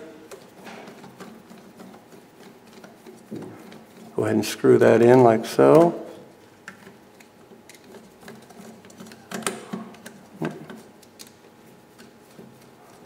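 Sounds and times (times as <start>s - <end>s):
metal parts clicking and rattling: 6.6s - 13.0s.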